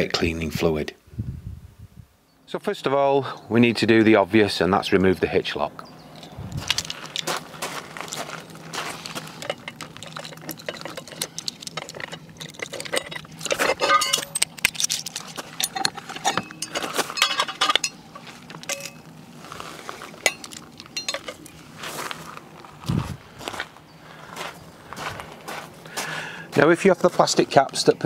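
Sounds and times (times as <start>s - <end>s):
metal hitch lock clinking and clattering: 6.0s - 19.2s, 20.0s - 21.6s.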